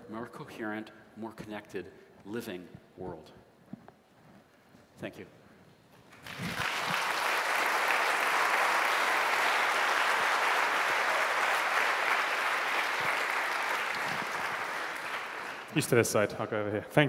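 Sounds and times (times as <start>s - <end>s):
audience applauding: 6.1s - 16.3s.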